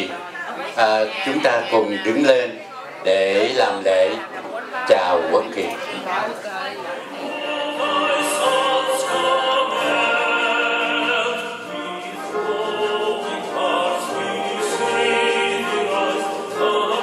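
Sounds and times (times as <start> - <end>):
choir singing with orchestra: 7.0 - 17.0.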